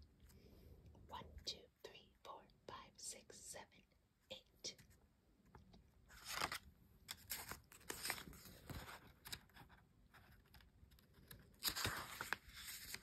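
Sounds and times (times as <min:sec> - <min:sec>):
paper rustling and clicking: 0:06.1 - 0:13.0.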